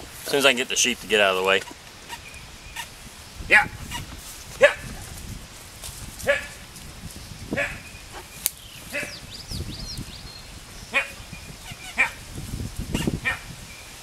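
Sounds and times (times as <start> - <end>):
dog barking: 3.5 - 3.8, 4.6 - 4.9, 6.2 - 6.6, 7.6 - 7.8, 8.9 - 9.2, 12.9 - 13.5.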